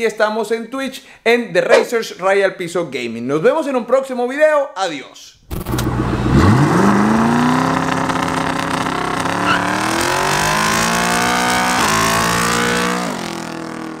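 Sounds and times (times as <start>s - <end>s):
car engine revving: 5.5s - 14.0s.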